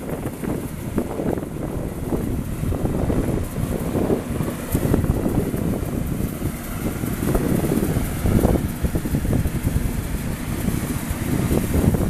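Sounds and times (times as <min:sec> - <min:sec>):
combine harvester engine drone: 0:00.0 - 0:12.0
wind buffeting microphone: 0:00.0 - 0:12.0.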